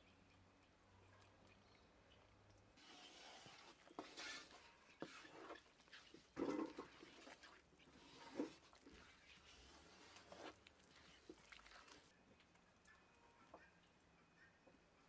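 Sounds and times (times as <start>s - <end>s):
spatula scraping metal pan: 2.8s - 12.1s.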